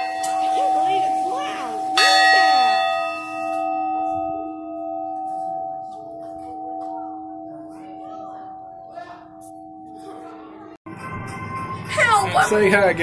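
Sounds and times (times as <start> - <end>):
brass bell struck: 0.0 - 6.0.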